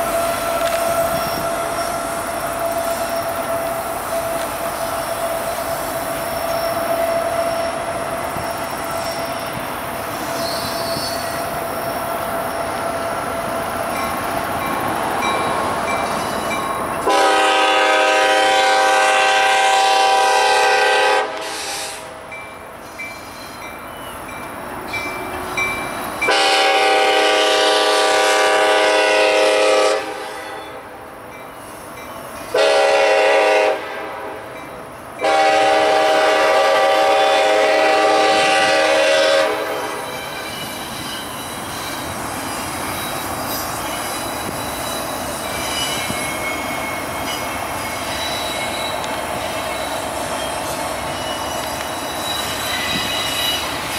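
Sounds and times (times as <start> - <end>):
locomotive air horn blasts: 0.0 - 5.6, 17.0 - 22.3, 26.3 - 30.9, 32.5 - 34.4, 35.2 - 40.1
train wheels running: 0.0 - 53.9.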